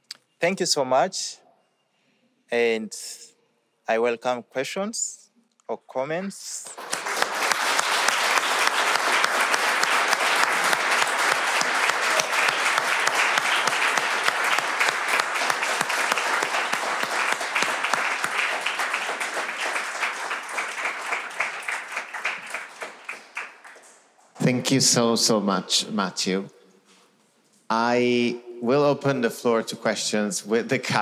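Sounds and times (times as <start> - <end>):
audience applauding: 6.6 - 24.2.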